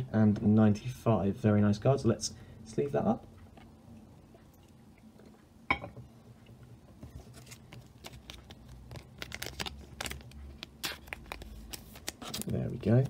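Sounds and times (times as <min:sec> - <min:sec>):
plastic sleeve crinkling: 0:07.2 - 0:13.0.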